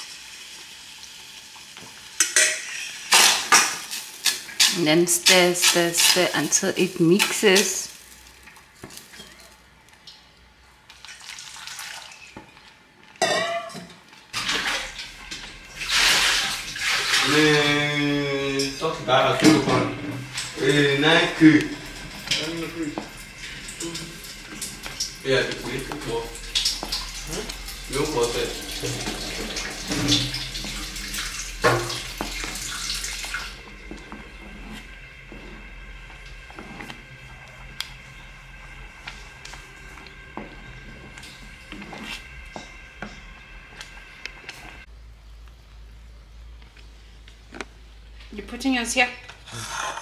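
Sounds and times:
wooden spoon scraping pot: 0:28.8 - 0:44.9.

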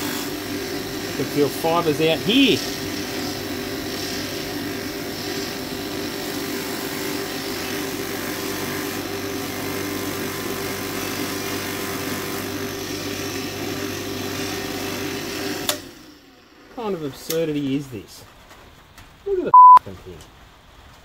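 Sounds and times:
bench grinder running: 0:00.0 - 0:17.1.

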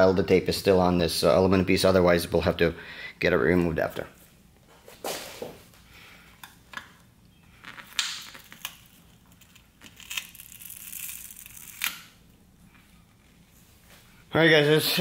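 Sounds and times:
tape tearing: 0:07.6 - 0:12.2.

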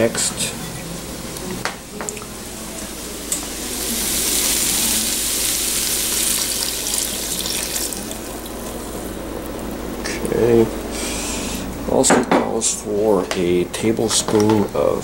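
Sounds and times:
liquid pouring and splashing: 0:03.6 - 0:09.9.

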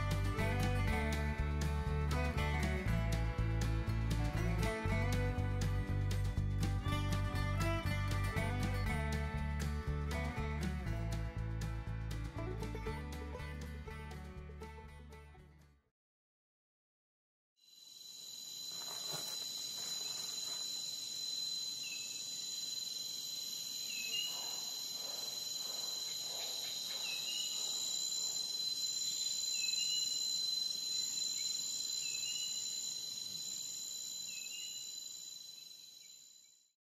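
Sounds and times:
insect chorus drone: 0:17.6 - 0:36.7
short insect chirp: 0:17.6 - 0:36.8.

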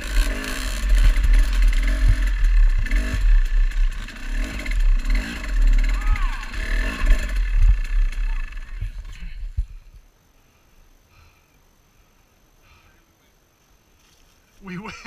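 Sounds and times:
dirt bike engine revving: 0:00.0 - 0:09.4.

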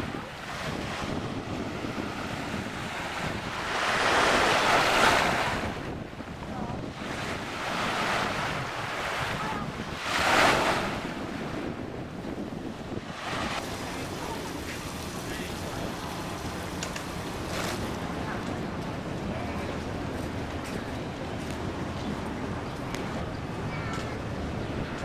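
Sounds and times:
small waves breaking on beach: 0:00.0 - 0:11.8, 0:12.8 - 0:18.2
wind buffeting microphone: 0:00.0 - 0:25.0.

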